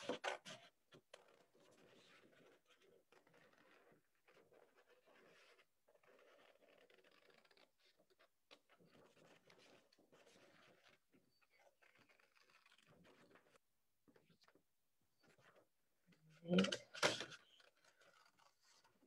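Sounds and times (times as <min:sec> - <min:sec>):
paper rustling: 0:16.7 - 0:19.0.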